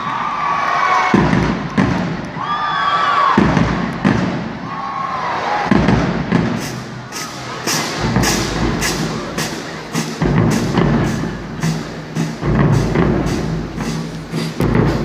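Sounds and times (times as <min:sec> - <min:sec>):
crowd whooping: 0:00.0 - 0:03.4
marching drumline playing: 0:01.1 - 0:02.2, 0:03.3 - 0:04.7, 0:05.7 - 0:15.0
bass drum thumps: 0:03.4 - 0:04.6, 0:10.2 - 0:15.0.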